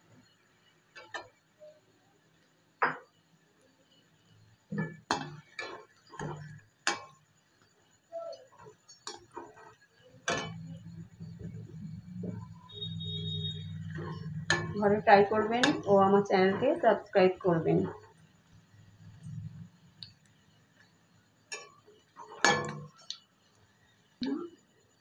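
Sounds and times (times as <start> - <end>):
low steady hum: 10.2 - 24.5.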